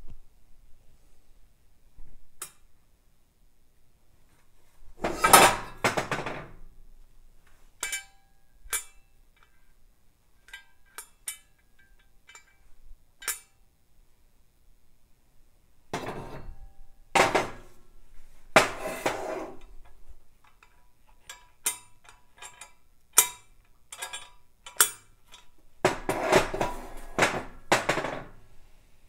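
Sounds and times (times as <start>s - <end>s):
metal clattering scrape: 5.0s - 5.8s, 16.0s - 16.6s, 18.6s - 19.7s, 25.9s - 28.3s
metal parts clinking: 20.5s - 25.6s.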